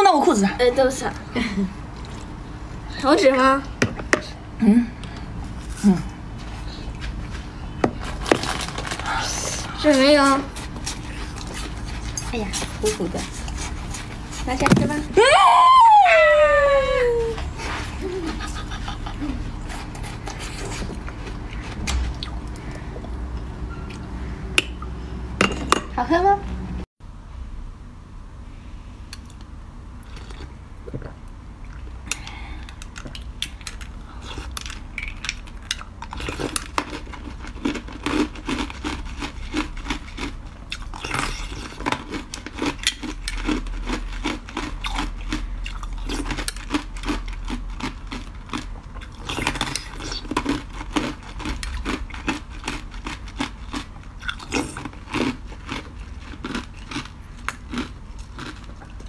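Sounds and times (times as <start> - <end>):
ice being chewed: 8.0 - 14.6, 17.6 - 24.1, 30.0 - 32.0, 32.6 - 59.0.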